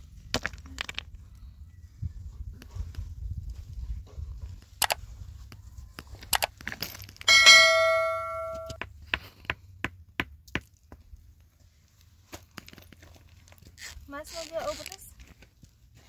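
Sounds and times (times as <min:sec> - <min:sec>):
sharp strike ringing like a bell: 0:07.3 - 0:08.8.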